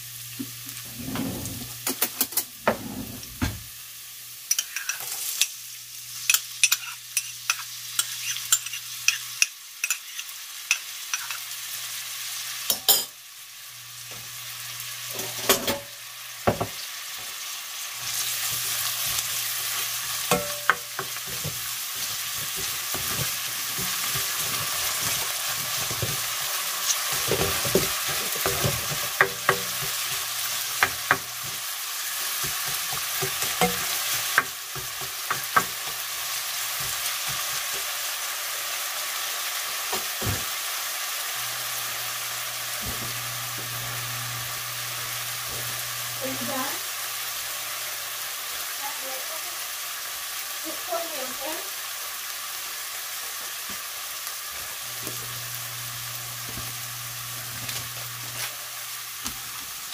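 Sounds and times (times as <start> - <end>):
onion and garlic sizzling in oil: 0.0 - 59.9
spatula scraping and clicking on pot: 4.5 - 5.6, 6.3 - 11.4.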